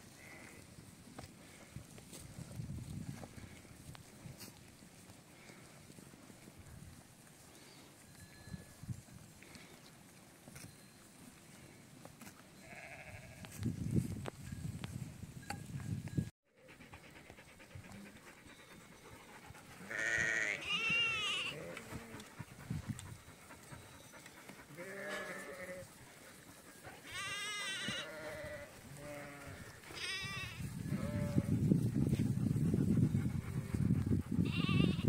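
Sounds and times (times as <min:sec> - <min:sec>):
sheep bleating: 0:12.6 - 0:13.4, 0:19.8 - 0:22.2, 0:24.8 - 0:25.8, 0:27.1 - 0:31.5, 0:34.5 - 0:35.0.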